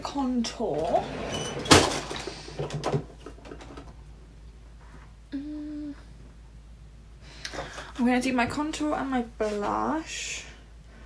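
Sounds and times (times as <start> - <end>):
person humming: 5.3 - 6.1.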